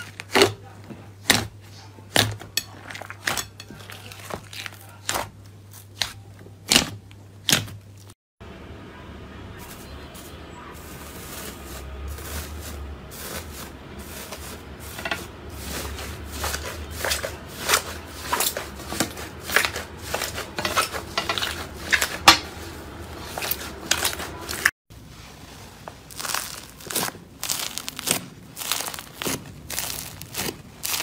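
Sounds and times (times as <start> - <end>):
crunchy slime crackling: 0.0 - 8.1, 25.8 - 31.0
foamy slime squishing: 0.0 - 8.2, 9.6 - 31.0
foil crinkling and crackling: 1.7 - 6.4, 9.6 - 31.0.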